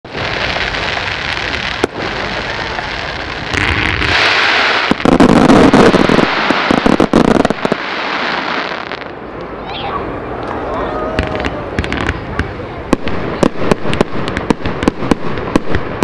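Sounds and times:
fireworks hissing rush: 0:00.0 - 0:10.3, 0:11.1 - 0:16.0
fireworks bang: 0:00.1 - 0:09.0, 0:11.2 - 0:16.0
rapid crackling pops: 0:11.8 - 0:16.0.

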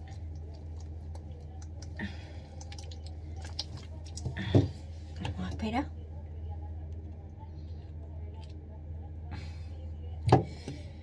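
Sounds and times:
wet squelches of hair liquid: 0:00.0 - 0:04.6
steady low hum: 0:00.0 - 0:11.0.

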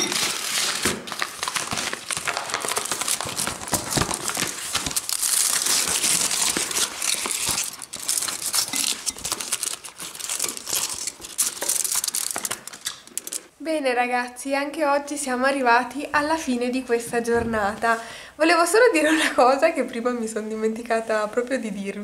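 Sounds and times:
foil wrapper crinkling: 0:00.0 - 0:13.5.

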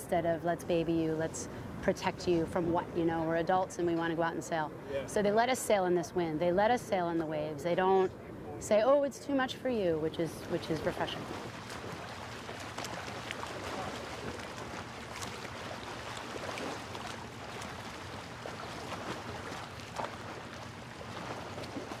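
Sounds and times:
water splashing against hull: 0:10.2 - 0:22.0.

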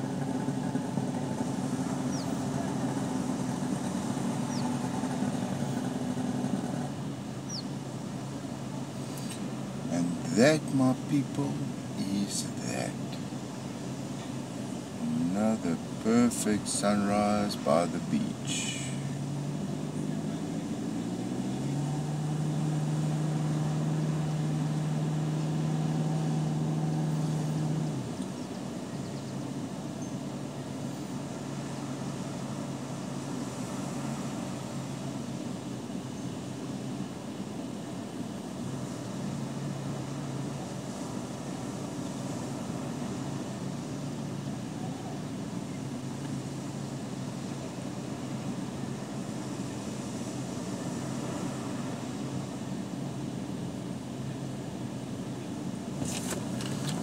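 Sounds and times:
car engine idling: 0:00.0 - 0:51.2
car cabin mechanical hum: 0:53.2 - 0:57.0.

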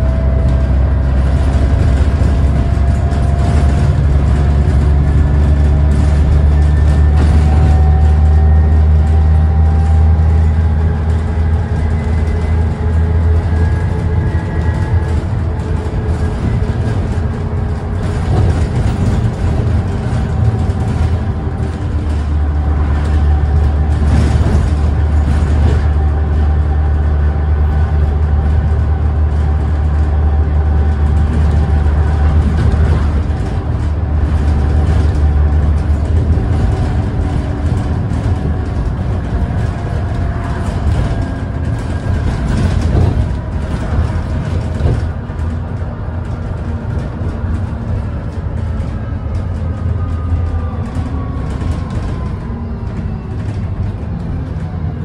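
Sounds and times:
bus diesel engine drone: 0:00.0 - 0:55.0
road and tyre noise: 0:00.0 - 0:55.0.

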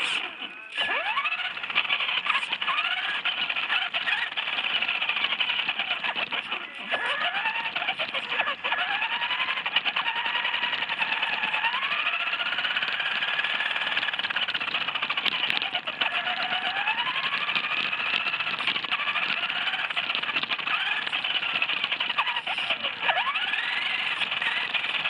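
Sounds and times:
toy car motor whining: 0:00.0 - 0:25.0
tyres crackling on gravel: 0:00.0 - 0:25.0.

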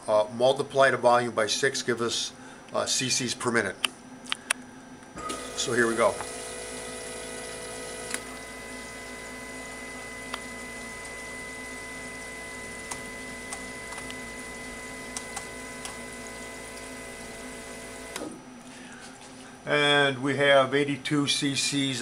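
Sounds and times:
pump hum: 0:05.2 - 0:19.6.

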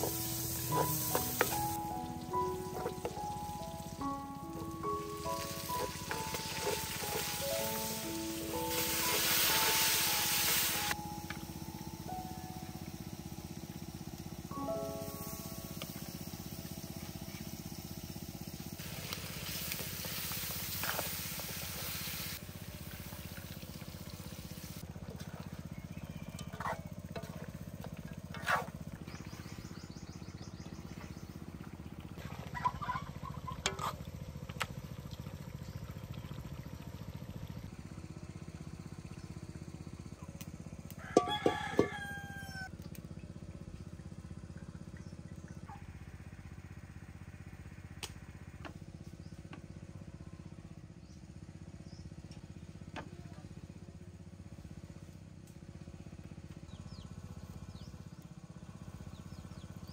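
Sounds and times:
rooster crowing: 0:41.0 - 0:42.7.

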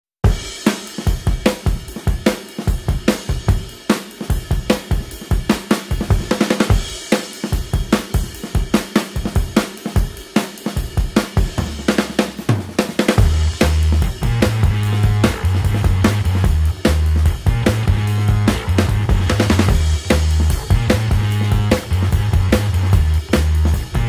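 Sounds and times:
drum-kit beat: 0:00.2 - 0:24.0
held bass note: 0:13.2 - 0:24.0.

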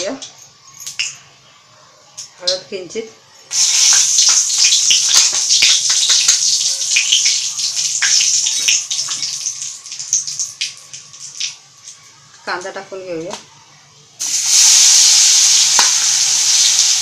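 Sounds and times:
hot oil sizzling and crackling: 0:00.0 - 0:01.2, 0:03.5 - 0:12.7, 0:14.2 - 0:17.0.

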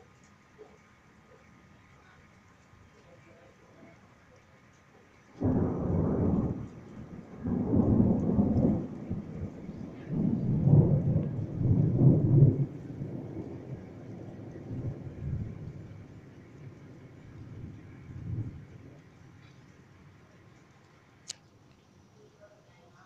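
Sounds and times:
thunder rumbling: 0:05.4 - 0:20.2.

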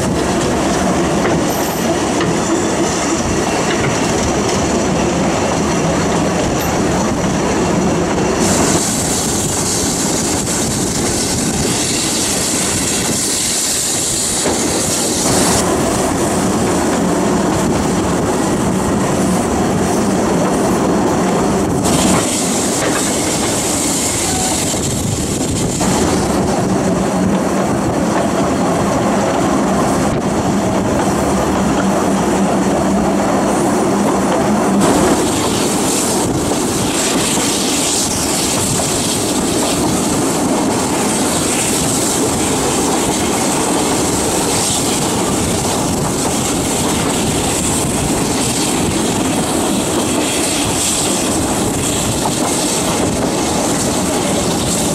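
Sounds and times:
high hiss: 0:08.4 - 0:16.5, 0:21.8 - 0:26.4.

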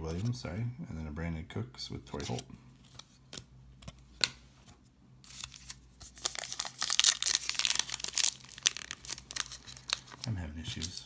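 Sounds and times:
foil wrapper crinkling and tearing: 0:05.3 - 0:11.0.

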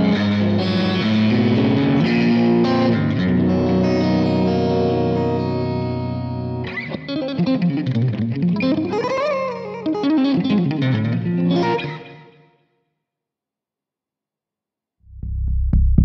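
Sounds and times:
electric guitar playing: 0:00.0 - 0:12.5.

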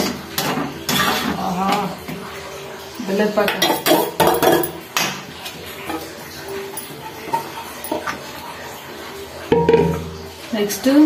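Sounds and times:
metal ladle scraping a pot: 0:00.0 - 0:01.9.

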